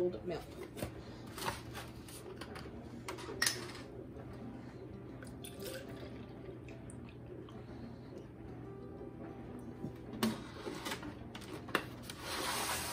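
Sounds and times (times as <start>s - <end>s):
dishwasher humming: 0.0s - 12.9s
milk pouring into plastic cup: 5.2s - 7.3s.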